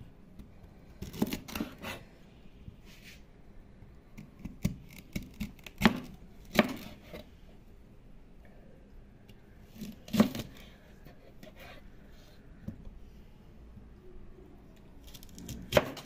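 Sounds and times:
knife cutting fennel on board: 0:04.4 - 0:07.2, 0:09.8 - 0:10.6, 0:15.0 - 0:16.0.

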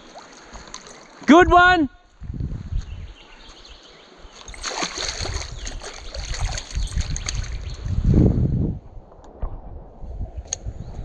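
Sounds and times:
water splashing and sloshing: 0:00.0 - 0:01.3, 0:04.1 - 0:08.0.

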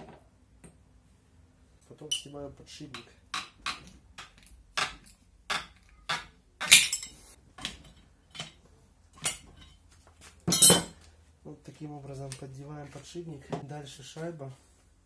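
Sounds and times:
screwdrivers clinking on metal: 0:02.0 - 0:02.4, 0:03.0 - 0:11.0.

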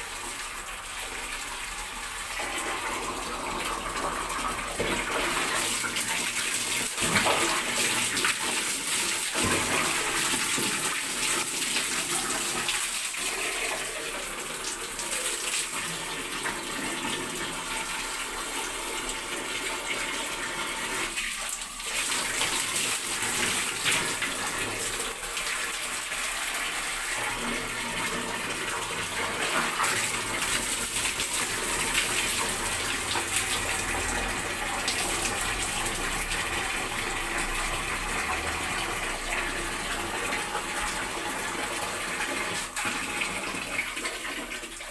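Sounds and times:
water running and splashing: 0:00.0 - 0:44.9.

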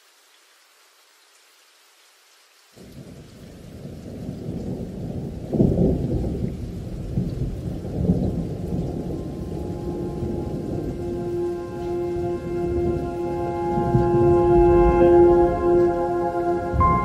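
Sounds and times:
rumbling thunder: 0:02.8 - 0:17.0
sustained music notes: 0:09.0 - 0:17.0.

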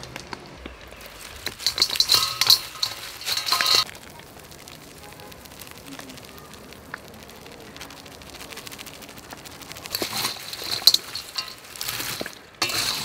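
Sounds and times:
fried food rattling into metal bowl: 0:00.8 - 0:04.0, 0:07.8 - 0:13.0.

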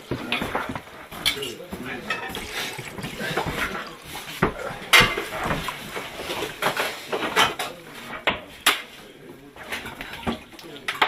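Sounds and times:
glasses clinking: 0:02.0 - 0:05.7
drink being poured: 0:02.0 - 0:06.4.

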